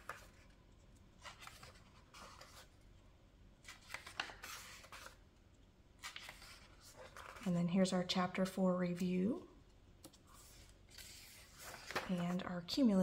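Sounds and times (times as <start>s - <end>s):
paper pages rustling: 0.0s - 2.8s, 3.6s - 5.2s, 6.0s - 7.5s, 10.0s - 12.6s.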